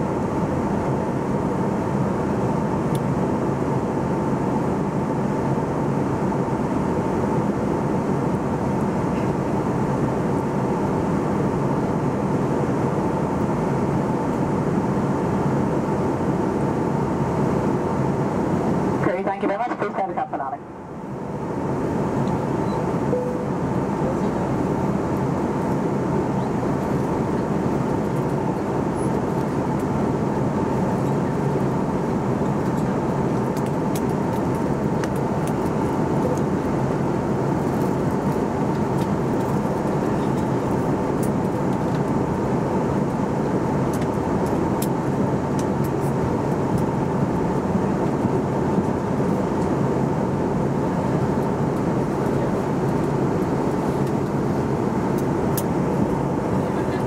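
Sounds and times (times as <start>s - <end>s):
thin steady hum-like tone: 0.0s - 33.9s
engine drone: 0.2s - 57.0s.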